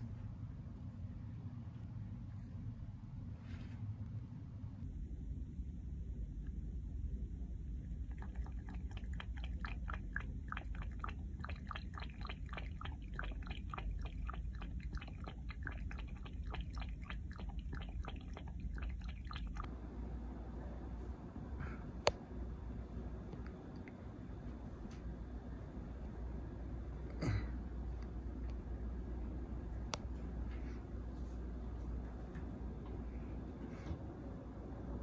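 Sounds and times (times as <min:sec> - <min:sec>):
cat lapping water: 0:07.9 - 0:19.7.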